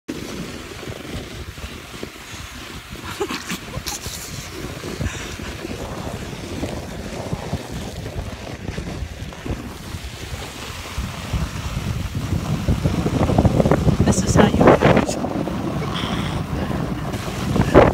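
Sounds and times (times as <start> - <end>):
sled rushing on snow: 0.1 - 17.9
wind buffeting microphone: 0.1 - 17.9.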